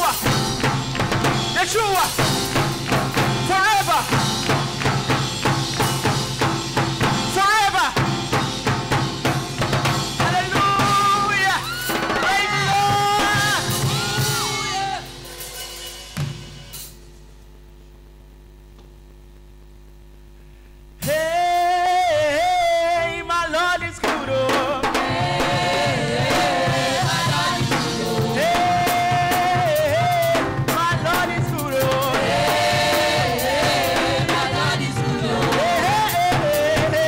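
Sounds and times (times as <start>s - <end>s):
drum kit and band playing: 0.0s - 17.2s, 21.0s - 21.8s, 23.6s - 37.0s
person singing through a pa: 10.2s - 15.2s, 21.0s - 37.0s
faint steady hum: 13.6s - 30.7s.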